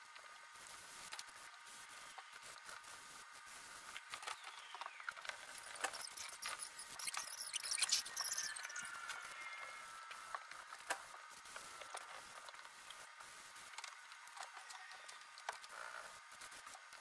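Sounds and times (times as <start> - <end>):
faint squeaks: 5.4 - 10.0.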